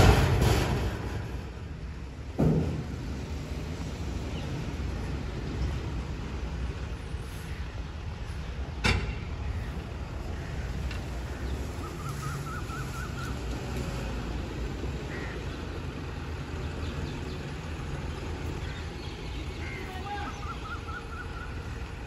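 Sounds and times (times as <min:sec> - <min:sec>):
diesel truck engine at low revs: 0:09.4 - 0:19.8.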